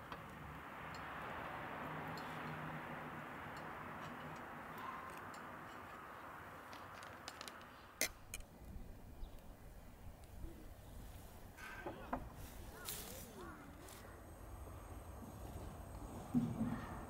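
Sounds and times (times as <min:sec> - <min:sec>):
metal clicks and clinks: 0:03.5 - 0:08.5
gas burner hissing: 0:10.2 - 0:17.0.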